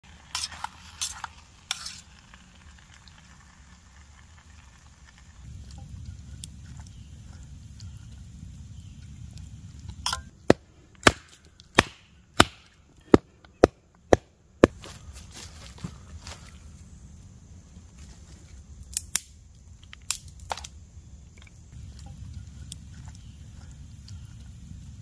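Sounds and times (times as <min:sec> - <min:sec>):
wooden mallet striking wooden stake: 0:10.4 - 0:14.9.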